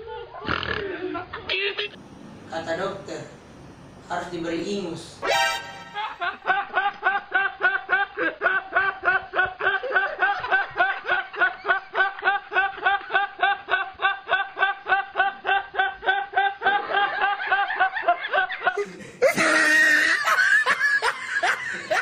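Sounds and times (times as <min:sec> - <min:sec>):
man laughing hard: 0:05.8 - 0:22.0.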